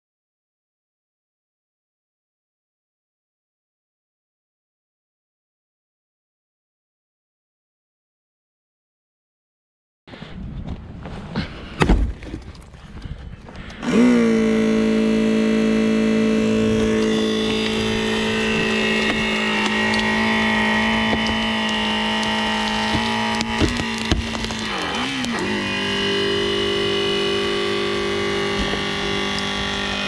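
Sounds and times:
loud thump: 0:11.8 - 0:12.3
electric pump humming: 0:13.6 - 0:30.0.

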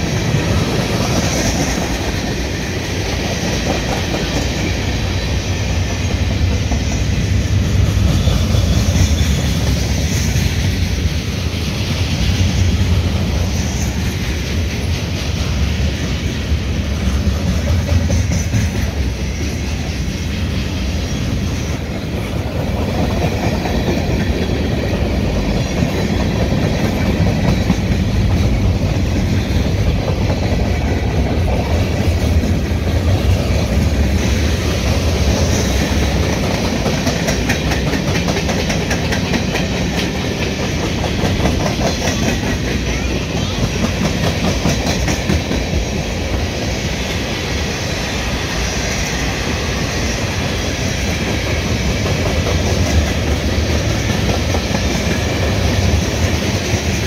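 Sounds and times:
freight train rumbling past: 0:00.0 - 0:57.0
wheels clacking over rail joints: 0:21.6 - 0:46.6.

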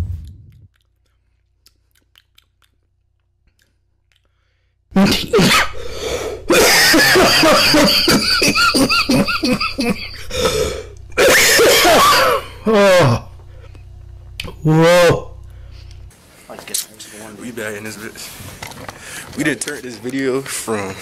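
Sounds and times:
man coughing hard: 0:05.0 - 0:05.8, 0:06.5 - 0:13.3.

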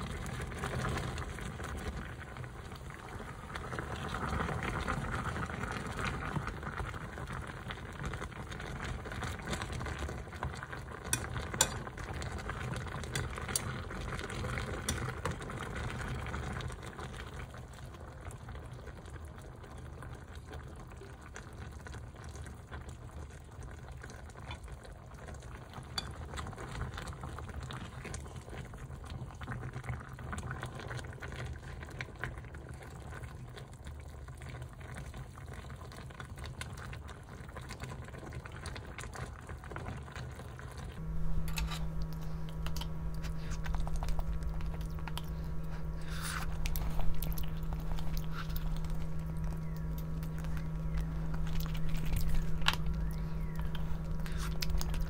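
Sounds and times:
food sizzling in a pot: 0:10.9 - 0:15.7.

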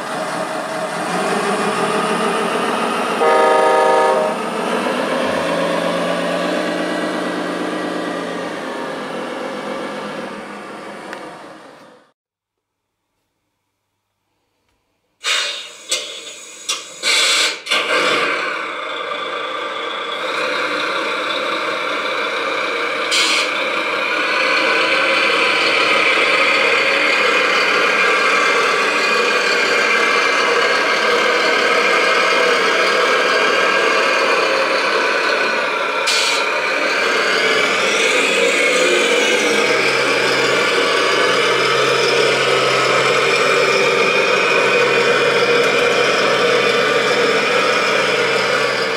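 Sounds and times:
short hisses: 0:15.2 - 0:17.6
engine starting clicks: 0:15.2 - 0:18.6
model truck engine idling: 0:15.9 - 0:48.9.

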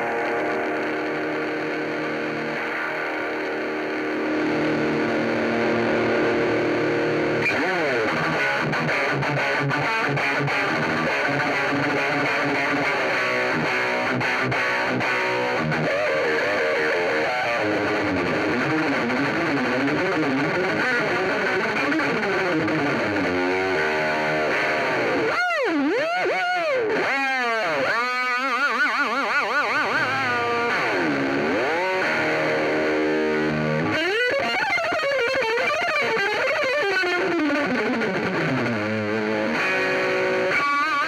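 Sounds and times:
distorted electric guitar lead: 0:00.0 - 0:41.0.

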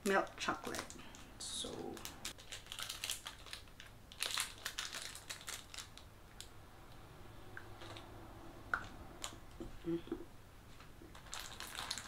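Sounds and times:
wrapper crinkling: 0:00.3 - 0:06.1, 0:11.1 - 0:12.0.

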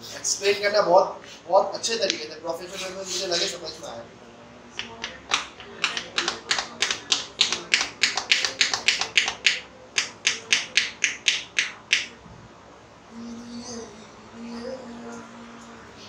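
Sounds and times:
hands clapping: 0:04.8 - 0:12.1.

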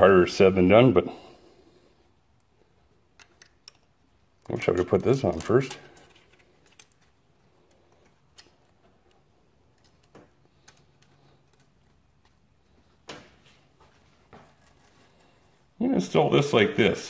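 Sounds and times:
faint metal clicks and taps: 0:03.1 - 0:13.2.

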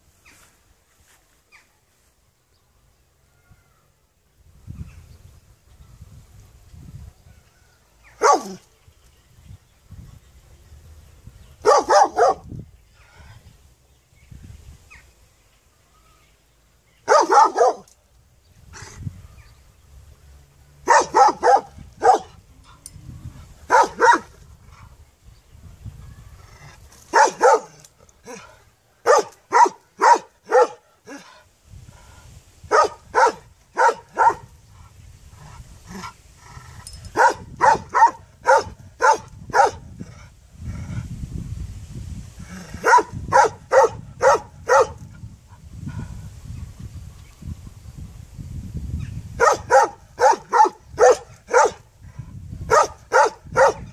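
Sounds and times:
large dog barking: 0:08.2 - 0:08.6, 0:11.6 - 0:12.5, 0:17.0 - 0:17.9, 0:20.8 - 0:22.4, 0:23.7 - 0:24.3, 0:27.1 - 0:31.3, 0:32.7 - 0:34.5, 0:37.2 - 0:39.9, 0:42.8 - 0:45.0, 0:49.4 - 0:51.9, 0:52.7 - 0:53.9.

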